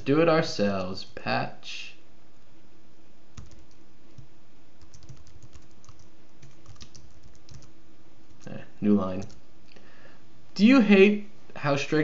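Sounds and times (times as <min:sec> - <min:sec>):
faint steady hum: 0:00.0 - 0:12.0
typing on computer keyboard: 0:03.4 - 0:07.7, 0:09.2 - 0:09.4.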